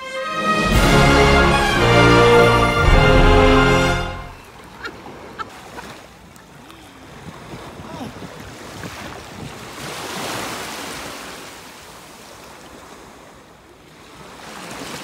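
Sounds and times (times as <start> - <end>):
small waves washing in: 0.3 - 15.0
wind on microphone: 7.2 - 9.9.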